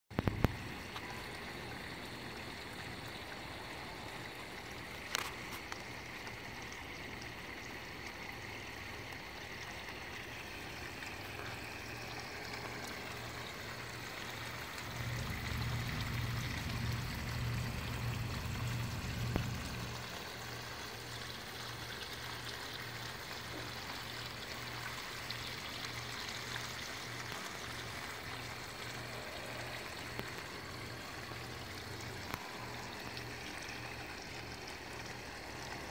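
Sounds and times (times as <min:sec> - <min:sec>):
small waterfall splashing into pond: 0:00.1 - 0:35.9
low rumble: 0:14.8 - 0:20.0.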